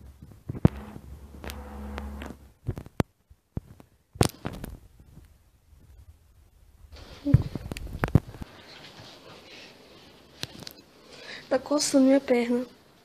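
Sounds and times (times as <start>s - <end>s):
low hum: 0.5s - 2.7s.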